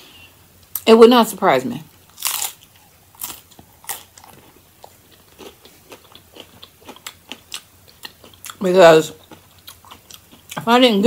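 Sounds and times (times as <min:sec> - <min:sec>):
crunchy taco bite and chewing: 0:02.0 - 0:10.6.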